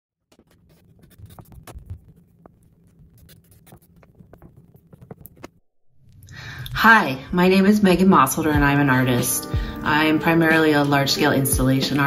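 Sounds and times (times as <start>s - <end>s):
drawing sticks scratching on paper: 0.3s - 5.5s.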